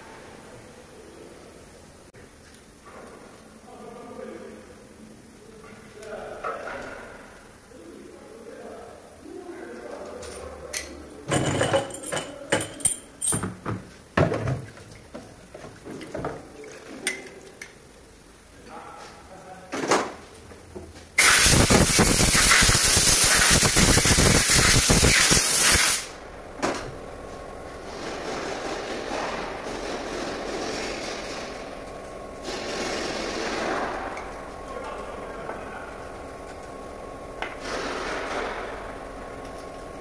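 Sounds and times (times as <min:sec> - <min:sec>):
metal parts clicking and tapping: 0:10.2 - 0:13.9
loud steady hiss: 0:21.2 - 0:40.0.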